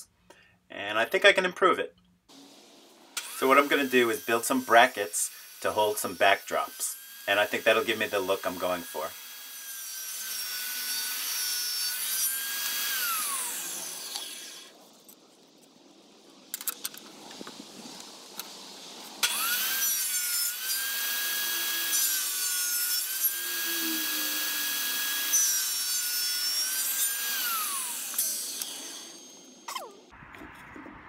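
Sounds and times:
table saw running and cutting wood: 3.2 - 14.7, 19.2 - 29.6.

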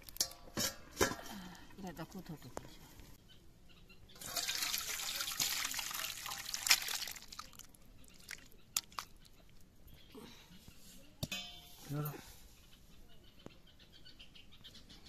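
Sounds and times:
liquid pouring and splashing: 4.2 - 9.2.

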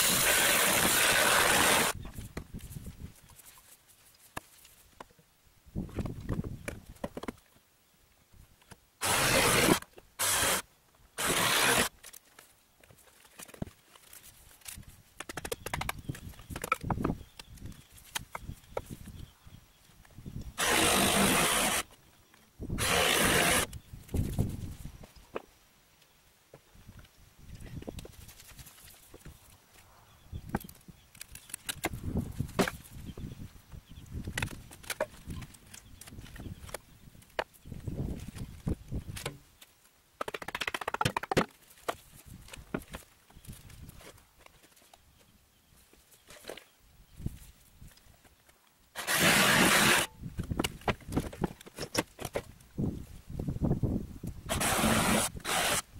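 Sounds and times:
wooden boards knocking and cracking: 5.9 - 7.5, 15.2 - 19.0, 31.3 - 32.9, 40.2 - 43.1, 49.0 - 52.6
harsh scraping of wooden boards: 9.0 - 10.6, 11.2 - 11.9, 20.6 - 21.9, 22.8 - 23.7, 49.0 - 50.1, 54.5 - 55.8.

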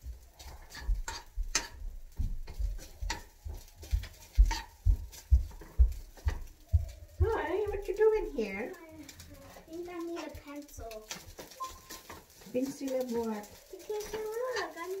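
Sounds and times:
utensil knocking and scraping in pan: 0.0 - 15.0.

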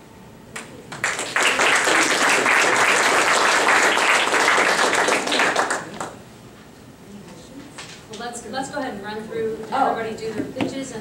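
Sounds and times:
audience applauding: 0.6 - 6.2.

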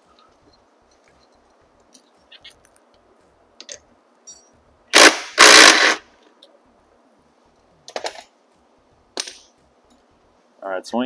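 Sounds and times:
impact wrench bursts: 4.9 - 6.0.

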